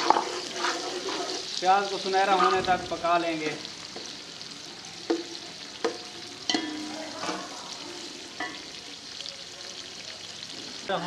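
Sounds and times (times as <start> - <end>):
onions sizzling in oil: 0.0 - 11.0
metal spoon clanking on pot: 5.1 - 7.5.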